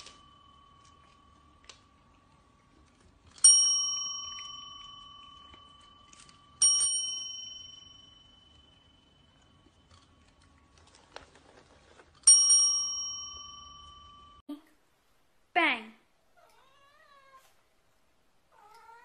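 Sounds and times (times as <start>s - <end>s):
desk service bell ringing: 0.0s - 2.6s, 3.3s - 10.2s, 12.2s - 14.4s.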